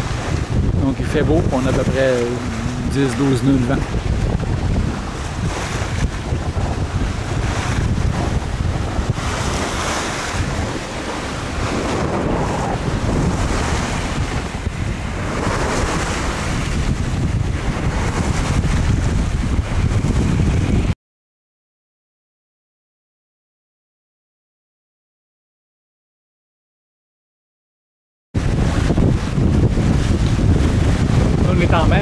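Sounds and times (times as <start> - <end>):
waves washing: 0.0 - 20.9, 28.4 - 32.0
wind buffeting microphone: 0.0 - 21.0, 28.4 - 32.0.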